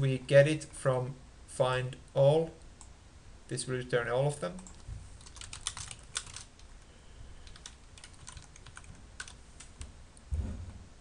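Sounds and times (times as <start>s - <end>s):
computer keyboard typing: 4.6s - 6.7s, 7.4s - 9.8s
short low thump: 10.3s - 10.8s.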